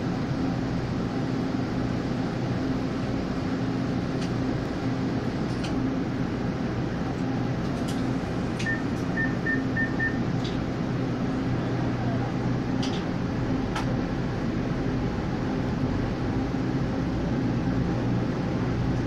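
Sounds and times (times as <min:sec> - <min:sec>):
train electrical and air-conditioning hum: 0:00.0 - 0:19.0
short high beeps: 0:08.7 - 0:10.2.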